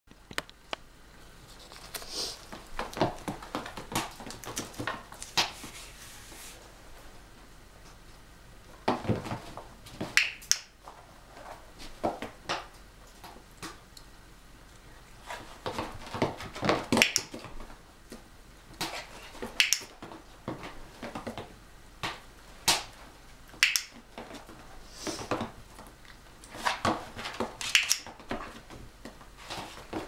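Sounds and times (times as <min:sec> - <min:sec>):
dog claws clicking on hard floor: 0:01.8 - 0:05.6, 0:15.6 - 0:17.6.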